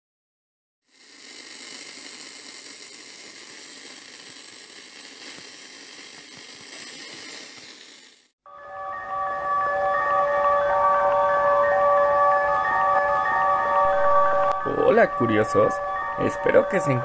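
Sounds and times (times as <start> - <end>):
faint crackles and clicks: 0.9 - 8.3.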